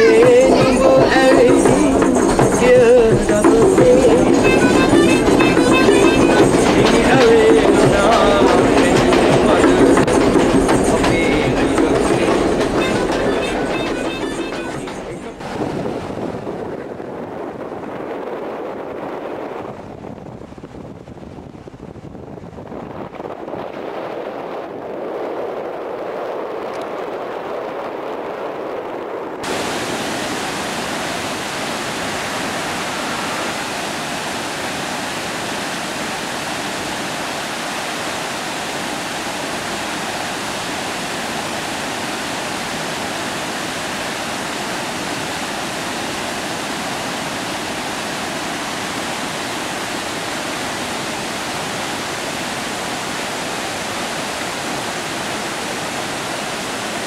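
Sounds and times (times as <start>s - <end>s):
stream rushing over boulders: 0.0s - 20.0s, 29.4s - 57.0s
vehicle wind and road noise: 12.4s - 57.0s.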